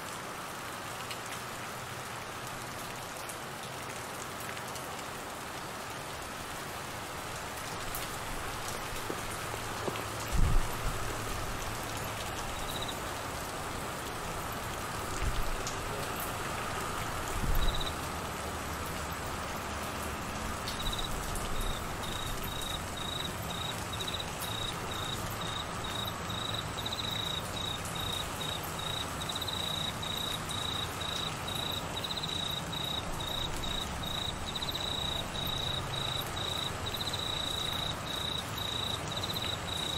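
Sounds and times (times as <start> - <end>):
rain falling on trees: 0.0 - 39.9
cricket chirping: 12.6 - 13.0, 17.5 - 18.0, 20.7 - 39.9.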